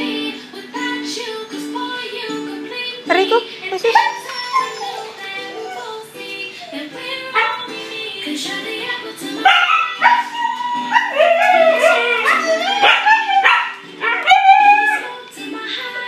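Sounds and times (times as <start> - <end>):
background music with singing: 0.0 - 16.0
puppy howling and yipping: 3.9 - 7.6, 9.4 - 15.2.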